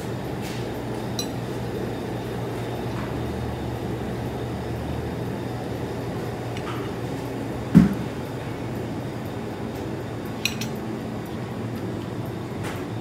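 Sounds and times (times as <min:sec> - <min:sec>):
cafe room noise: 0:00.0 - 0:13.0
tableware clinking: 0:01.2 - 0:01.4, 0:10.4 - 0:10.8.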